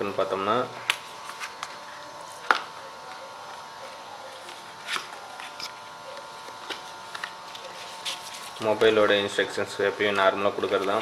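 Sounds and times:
paper rustling: 0:00.9 - 0:03.2, 0:04.2 - 0:05.8, 0:06.5 - 0:09.0, 0:09.9 - 0:11.0.

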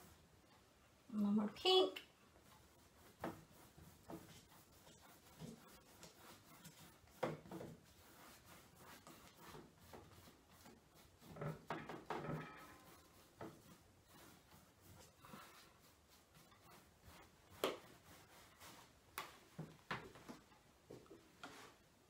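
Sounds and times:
paintbrush scrubbing canvas: 0:02.3 - 0:19.0.

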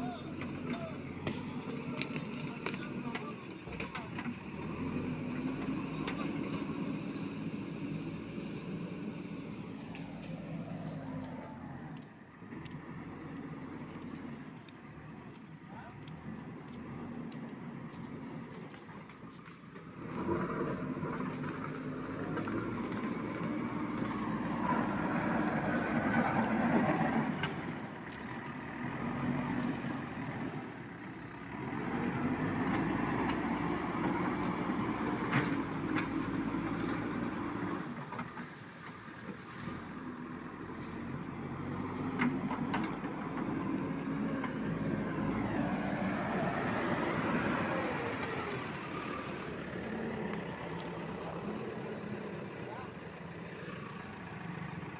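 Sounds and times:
diesel engine working: 0:00.0 - 0:54.9.

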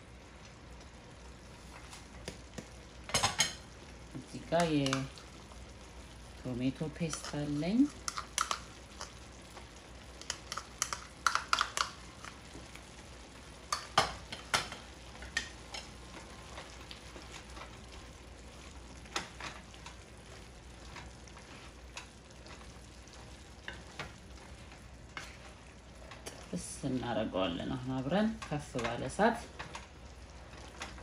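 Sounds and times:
food sizzling in a frying pan: 0:00.0 - 0:31.0
wooden spoon scraping a pan: 0:07.0 - 0:09.1, 0:19.2 - 0:22.8, 0:23.6 - 0:26.6.

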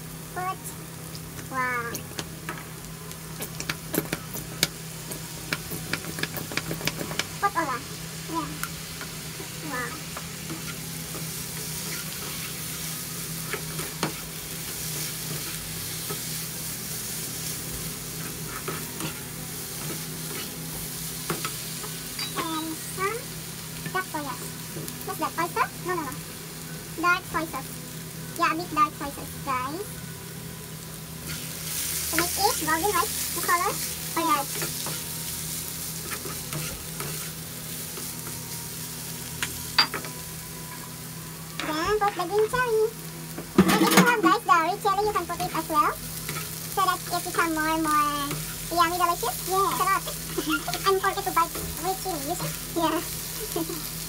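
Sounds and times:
food sizzling in a frying pan: 0:00.0 - 0:54.0
spatula scraping and stirring: 0:10.4 - 0:12.8, 0:18.1 - 0:22.4, 0:36.0 - 0:37.4.

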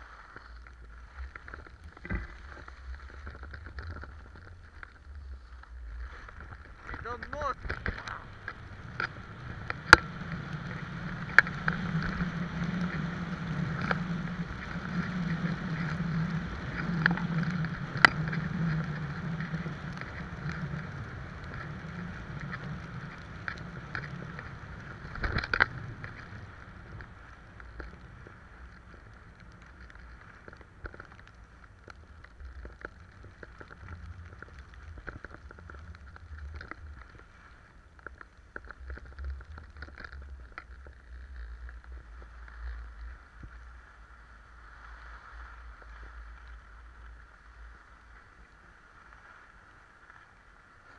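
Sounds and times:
skis scraping on packed snow: 0:00.0 - 0:50.9
wind on microphone: 0:01.7 - 0:37.0.

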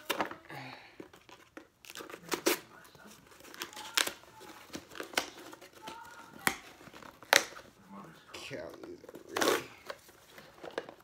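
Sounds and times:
paper and plastic crinkling: 0:00.0 - 0:11.0.

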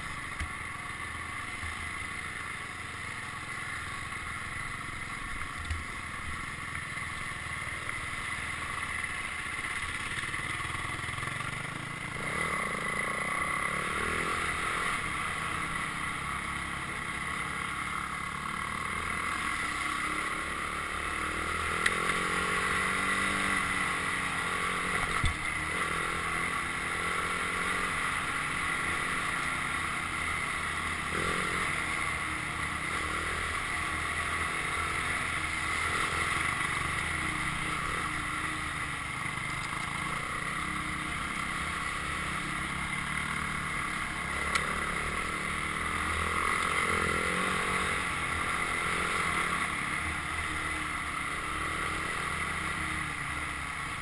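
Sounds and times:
dirt bike engine revving: 0:11.2 - 0:54.0.

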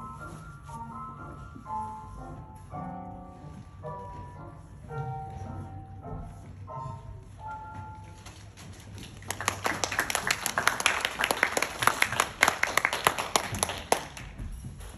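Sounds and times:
ballet music: 0:00.0 - 0:14.6
audience applause: 0:09.1 - 0:14.3.

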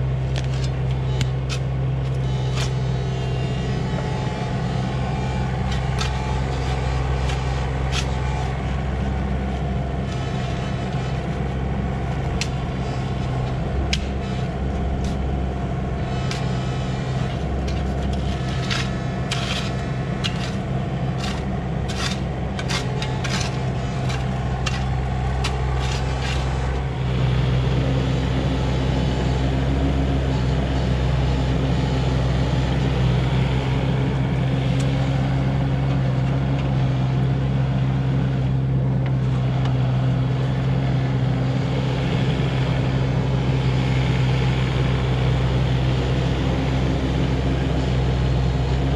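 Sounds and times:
excavator diesel engine running: 0:00.0 - 0:48.9
steel scraping stony soil: 0:00.3 - 0:28.7.

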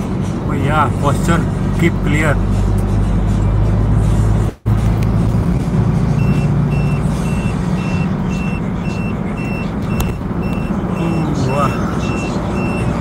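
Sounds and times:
vehicle engine and road noise: 0:00.0 - 0:13.0
short high electronic beeps: 0:06.2 - 0:12.9.

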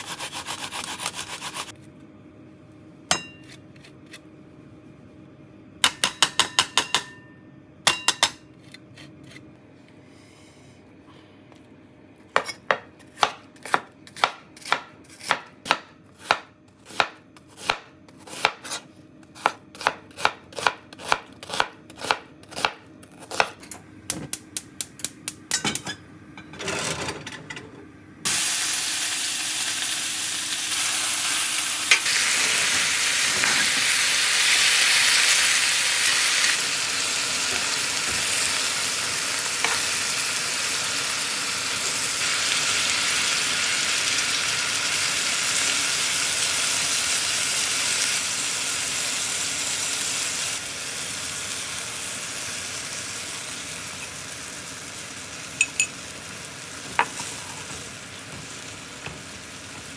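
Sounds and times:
knife chopping on cutting board: 0:12.3 - 0:18.8, 0:19.4 - 0:24.4
meat sizzling in frying pan: 0:28.3 - 0:59.9.

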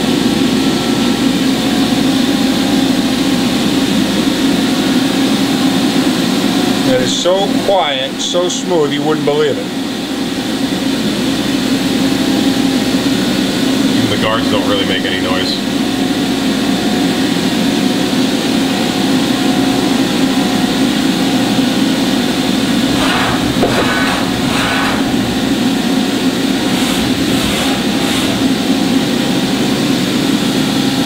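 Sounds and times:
machining center humming: 0:06.5 - 0:31.0.

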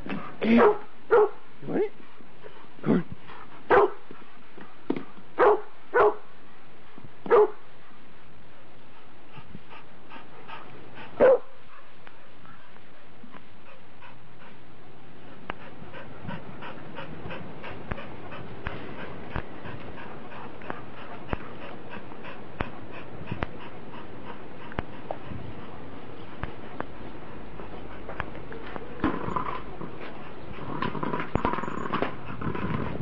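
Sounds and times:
dog barking: 0:00.5 - 0:01.4, 0:03.7 - 0:04.0, 0:05.4 - 0:06.2, 0:07.3 - 0:07.6, 0:11.2 - 0:11.5.

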